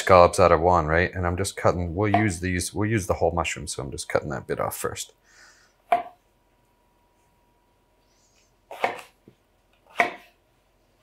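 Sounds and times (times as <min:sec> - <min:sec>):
knife slicing on cutting board: 0:08.7 - 0:09.2.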